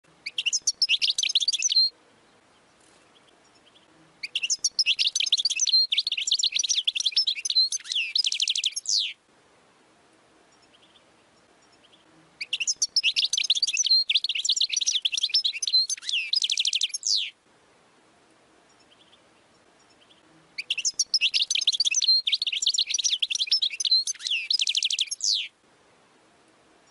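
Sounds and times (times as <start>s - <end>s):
finch twittering and trilling: 0.2s - 1.9s, 3.5s - 9.2s, 11.7s - 17.4s, 20.0s - 25.5s.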